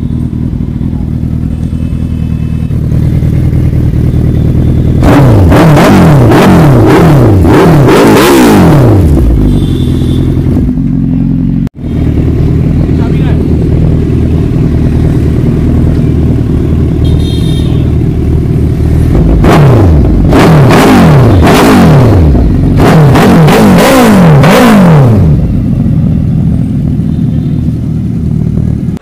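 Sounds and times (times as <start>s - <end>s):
motorcycle engine idling: 0.0s - 5.3s, 9.0s - 19.4s, 22.3s - 22.8s, 25.2s - 29.0s
motorcycle throttle blips: 0.0s - 29.0s.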